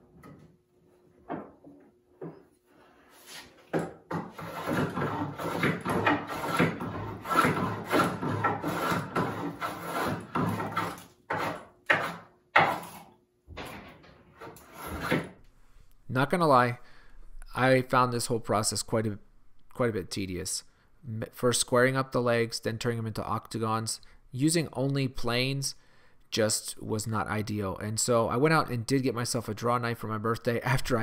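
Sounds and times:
hand plane shaving wood: 0:02.9 - 0:13.1, 0:14.4 - 0:15.4.

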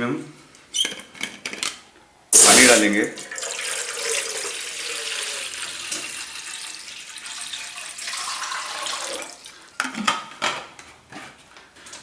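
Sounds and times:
water pouring into metal pot: 0:02.4 - 0:09.5.

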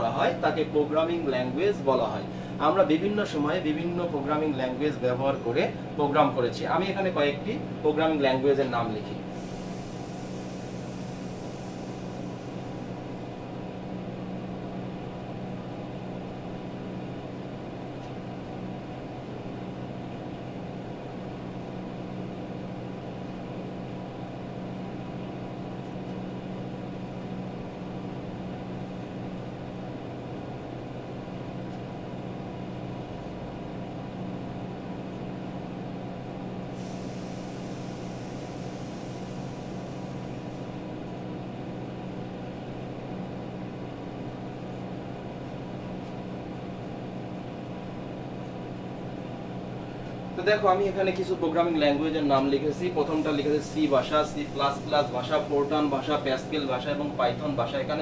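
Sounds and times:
steady room hum: 0:00.0 - 0:58.0
faint hiss: 0:08.1 - 0:14.9, 0:36.2 - 0:43.1, 0:49.7 - 0:58.0.

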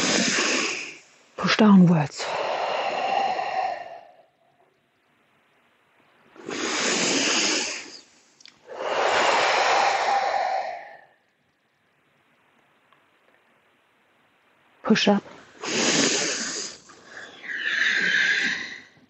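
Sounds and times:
person breathing deeply: 0:00.0 - 0:01.3, 0:02.2 - 0:04.4, 0:06.4 - 0:11.2, 0:15.4 - 0:19.0.

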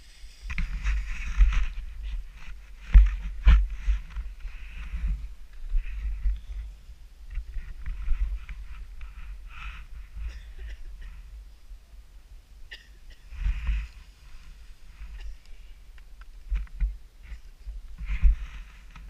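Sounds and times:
skis scraping on snow: 0:00.0 - 0:06.0
wind rumbling on microphone: 0:00.0 - 0:12.6, 0:13.3 - 0:19.0.

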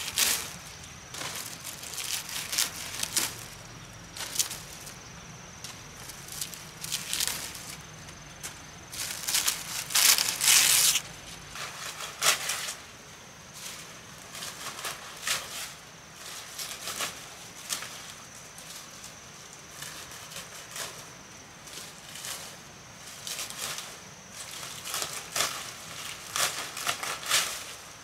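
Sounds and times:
machete hacking dry thatch: 0:26.2 - 0:27.7.

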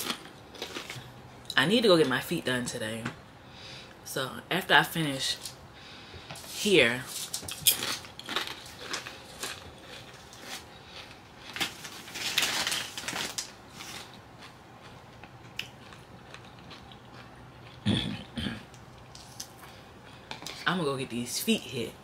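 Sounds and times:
tortilla chips crunching: 0:00.0 - 0:01.2, 0:07.1 - 0:17.8, 0:19.0 - 0:20.7.

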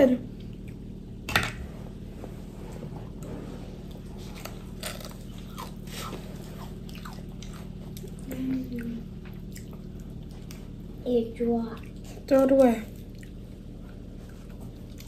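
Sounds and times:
low hum: 0:00.0 - 0:15.0
fried chicken being chewed: 0:03.9 - 0:11.0, 0:11.7 - 0:15.0.

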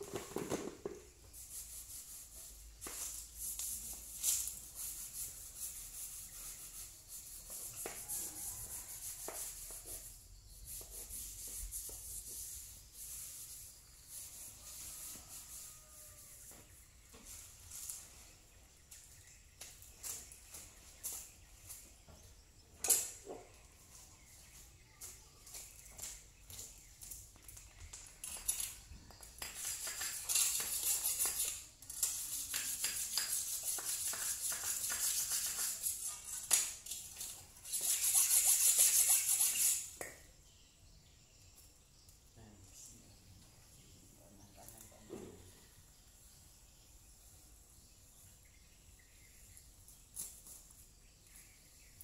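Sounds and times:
steady high hiss: 0:00.0 - 0:23.2
rustling of cut grass: 0:11.4 - 0:22.1.

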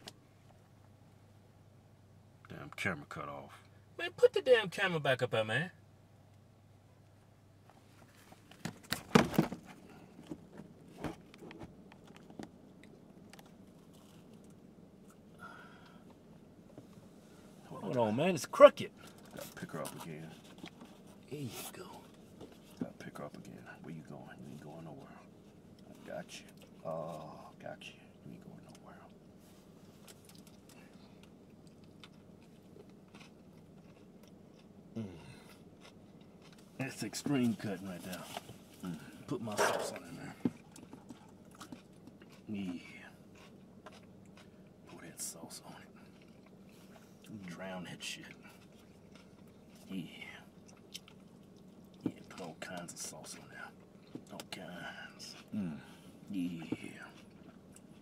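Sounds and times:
low steady hum: 0:00.0 - 0:58.0
camera handling knocks and rustles: 0:08.5 - 0:12.4
wet mouth clicks chewing: 0:40.6 - 0:42.5, 0:46.0 - 0:46.6.

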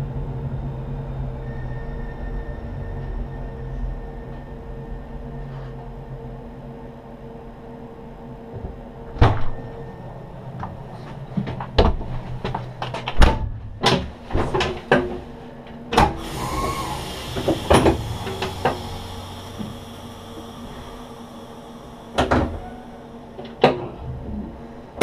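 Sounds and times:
equipment hum: 0:03.0 - 0:25.0
hiss: 0:16.2 - 0:23.5.

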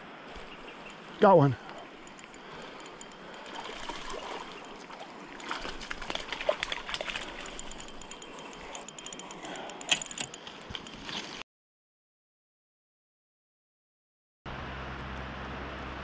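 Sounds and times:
water splashing: 0:01.4 - 0:08.8
fishing reel clicking: 0:01.6 - 0:11.1.

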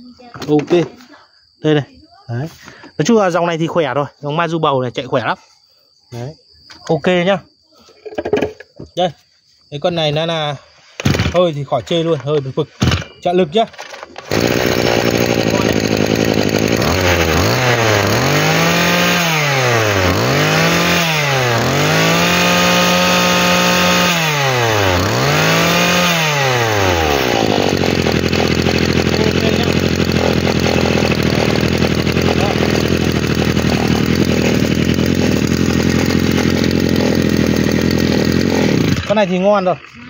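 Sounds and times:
brush cutter engine revving and idling: 0:11.0 - 0:11.4, 0:13.8 - 0:40.0.

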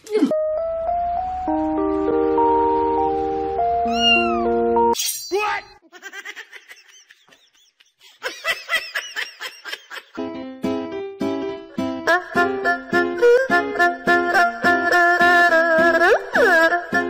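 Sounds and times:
background music with held notes: 0:00.1 - 0:05.0, 0:10.2 - 0:17.0
cat loud falling cry: 0:03.9 - 0:04.5
cat meowing: 0:03.9 - 0:04.6.

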